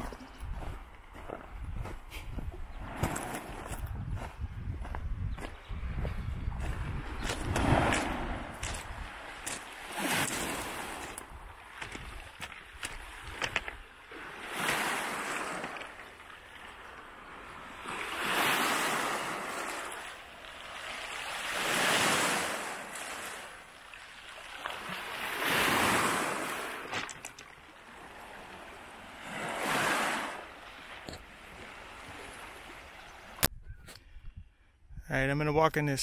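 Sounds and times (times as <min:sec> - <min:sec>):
waves washing onto pebble beach: 0:07.5 - 0:33.0.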